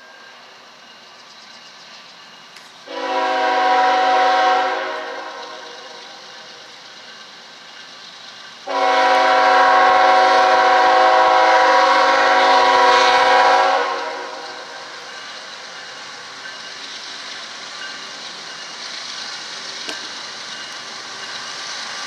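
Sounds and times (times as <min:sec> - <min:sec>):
locomotive air horn blasts: 0:02.8 - 0:06.0, 0:08.7 - 0:14.6.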